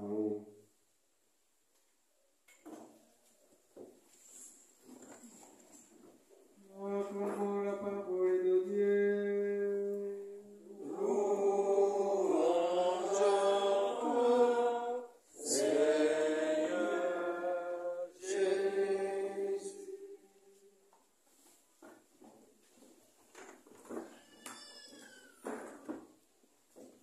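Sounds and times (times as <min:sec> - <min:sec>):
person chanting: 0:00.0 - 0:00.6, 0:06.6 - 0:20.8
several voices singing: 0:06.7 - 0:20.8.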